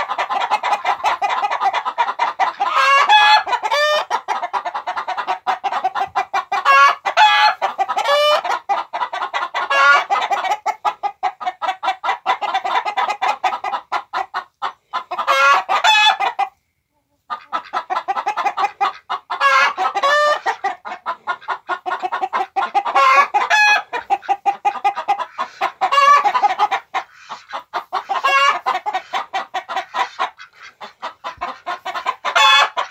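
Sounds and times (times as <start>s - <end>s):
chickens clucking: 0.0s - 32.9s.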